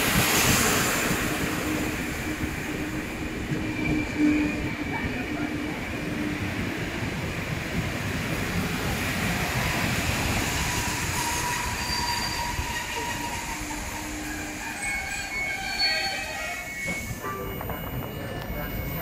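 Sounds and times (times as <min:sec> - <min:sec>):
train wheels rumbling on rails: 0:00.0 - 0:19.0
thin wheel squeals: 0:10.8 - 0:19.0.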